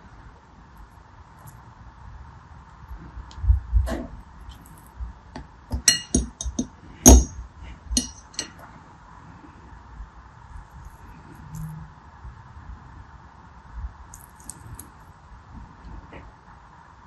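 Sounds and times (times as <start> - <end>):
knife clinking against bowl: 5.7 - 7.3, 8.0 - 8.6.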